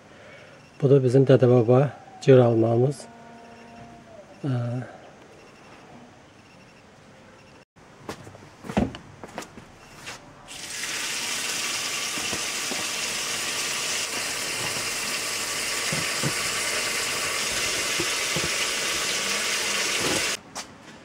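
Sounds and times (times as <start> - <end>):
tap water running into metal basin: 10.5 - 20.4.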